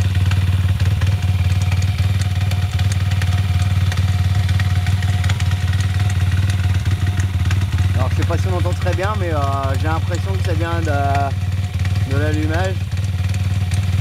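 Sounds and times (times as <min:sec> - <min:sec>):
motorbike engine idling: 0:00.0 - 0:14.0
metallic ticking: 0:00.1 - 0:14.0.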